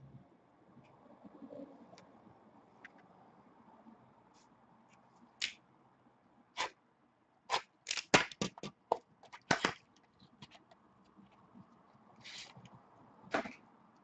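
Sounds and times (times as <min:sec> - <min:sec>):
cards and plastic holder clicking: 0:07.5 - 0:10.8.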